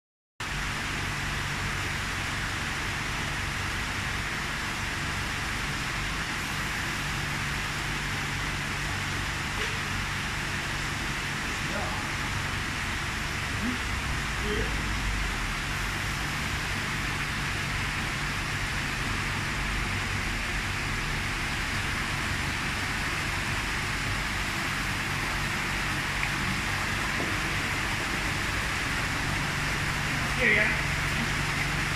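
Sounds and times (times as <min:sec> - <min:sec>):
low steady hum: 0:00.4 - 0:31.9
water rushing into a pond: 0:00.4 - 0:31.9
water pouring into tank: 0:24.6 - 0:31.9.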